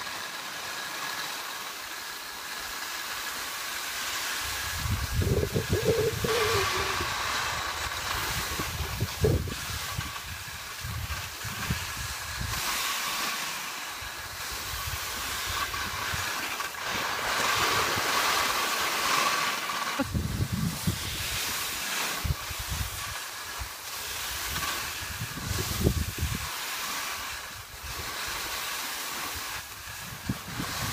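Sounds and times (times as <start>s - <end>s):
skis scraping over snow: 0.0s - 30.9s
wind buffeting microphone: 4.4s - 12.6s, 20.0s - 21.6s, 24.4s - 26.5s.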